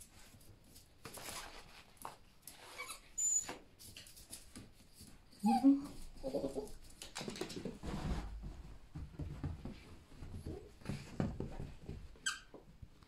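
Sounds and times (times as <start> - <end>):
high-pitched squeak: 2.6 - 3.6
dog paws pattering: 3.4 - 13.0.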